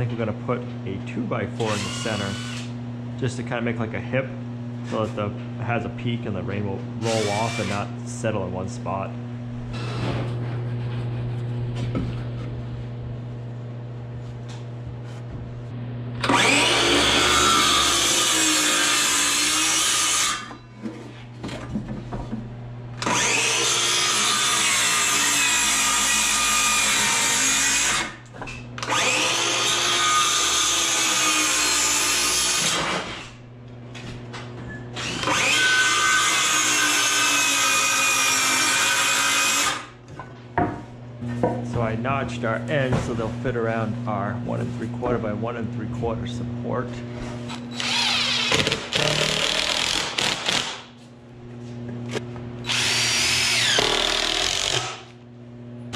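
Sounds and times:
circular saw ripping a board: 16.2 - 20.6, 47.8 - 50.9.

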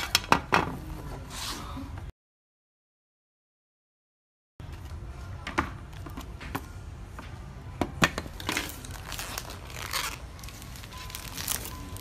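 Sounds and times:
packaging crinkling and rustling: 8.4 - 12.0.

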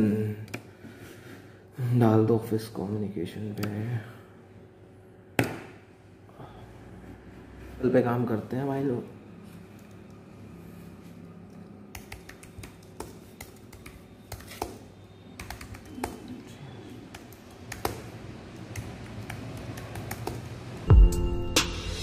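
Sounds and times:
faint steady hum: 0.0 - 22.0
typing on computer keyboard: 11.9 - 14.8, 15.4 - 16.5, 17.1 - 20.6.

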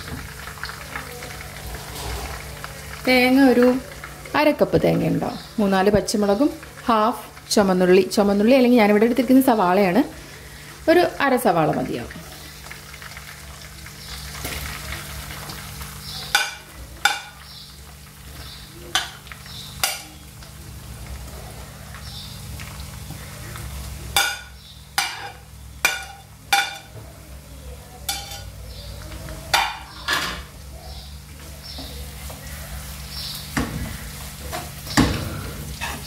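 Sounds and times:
food frying in hot oil: 0.0 - 36.0.

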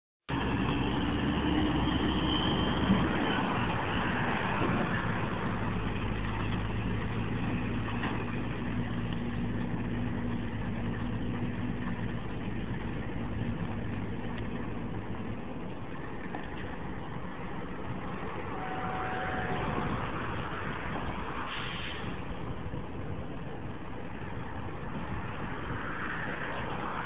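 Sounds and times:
diesel engine idling: 0.3 - 25.1.

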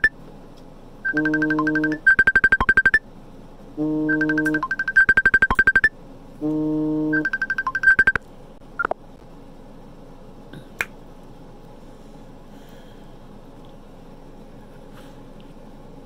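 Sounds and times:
electronic jingle with beeps: 1.1 - 3.0, 4.0 - 5.9, 7.0 - 8.2.

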